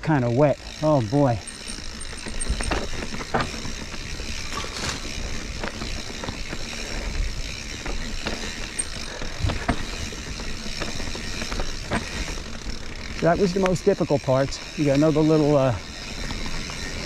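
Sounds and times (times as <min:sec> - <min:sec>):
bike tyre and drivetrain noise: 0:00.0 - 0:17.0
chain and frame clanking: 0:00.8 - 0:12.5.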